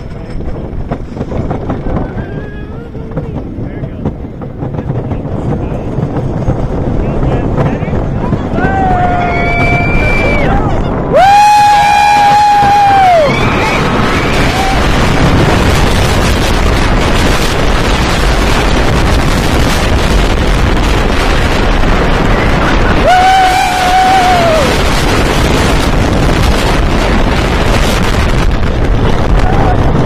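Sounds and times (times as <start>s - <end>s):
roller coaster wheels rumbling: 0.0s - 30.0s
wind blasting microphone: 0.0s - 30.0s
rider screaming: 8.4s - 15.1s, 22.5s - 24.9s.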